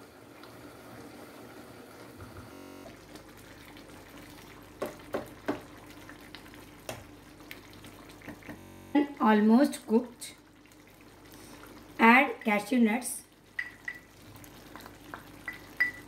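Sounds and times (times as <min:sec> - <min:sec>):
curry simmering: 0:02.9 - 0:08.5, 0:09.4 - 0:16.0.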